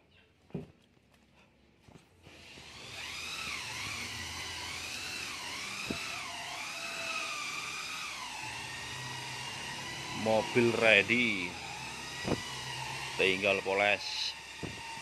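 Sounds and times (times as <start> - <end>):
power tool whining: 2.2 - 15.0.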